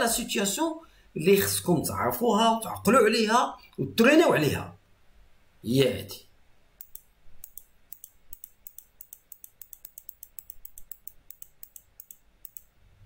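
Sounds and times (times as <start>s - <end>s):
faint computer clicks: 6.8s - 12.8s.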